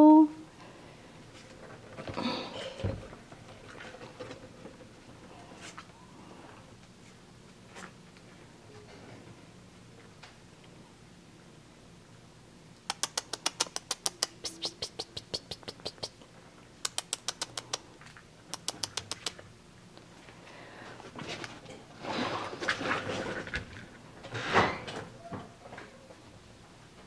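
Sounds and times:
light rapid clicks: 12.8s - 16.1s, 16.8s - 17.8s, 18.5s - 19.4s.

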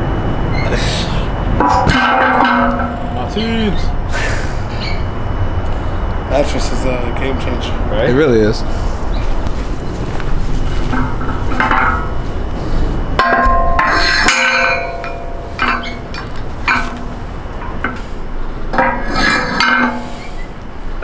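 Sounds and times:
metal weight plates clanking: 1.6s - 3.9s, 10.9s - 12.2s, 13.2s - 18.1s, 18.7s - 20.6s.

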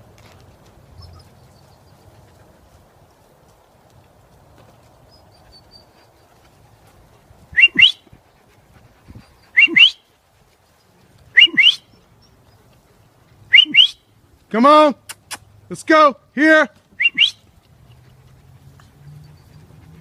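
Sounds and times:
person whistling: 7.6s - 8.0s, 9.6s - 10.0s, 11.4s - 11.8s, 13.5s - 14.0s, 17.0s - 17.4s.

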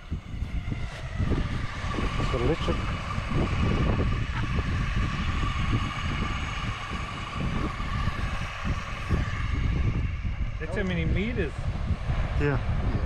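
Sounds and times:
electric fishing reel motor whine: 0.0s - 13.0s
wind buffeting microphone: 0.0s - 13.0s.

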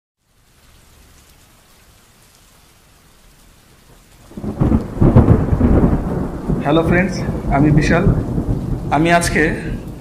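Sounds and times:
rain hissing: 0.2s - 10.0s
thunder rumbling: 3.9s - 10.0s.

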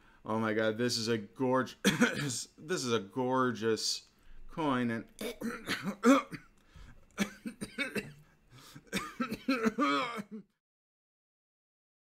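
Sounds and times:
man coughing and clearing throat: 1.8s - 2.5s, 5.2s - 6.6s, 7.2s - 10.6s.

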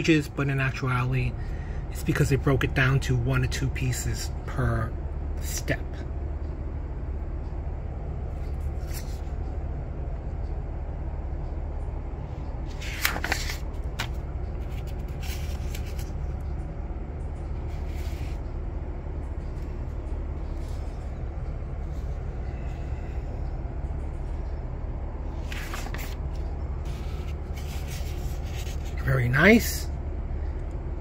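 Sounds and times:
low hum: 0.1s - 31.0s
paper pages turning: 8.4s - 9.4s, 12.6s - 16.4s, 17.6s - 18.5s, 25.3s - 29.0s.

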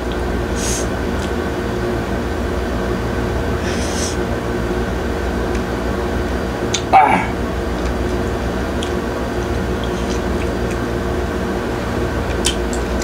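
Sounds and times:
low room hum: 0.0s - 13.0s
man's loud vocal sound: 6.9s - 7.4s.

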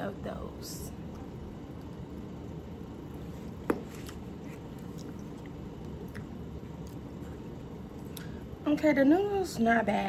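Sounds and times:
person chewing noodles: 3.1s - 8.2s.

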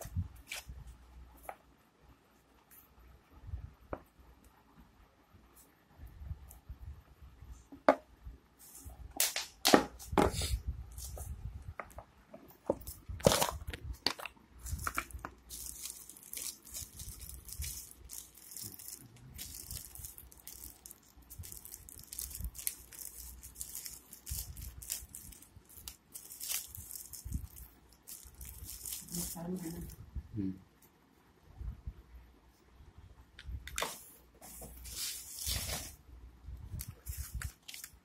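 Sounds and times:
packing material crinkling: 12.7s - 30.0s, 33.8s - 36.0s, 36.8s - 38.0s.

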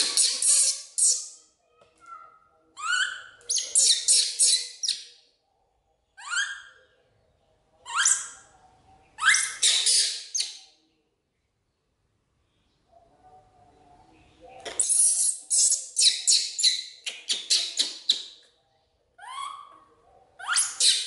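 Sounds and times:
baby monkey screaming: 9.2s - 10.4s, 19.2s - 19.7s.

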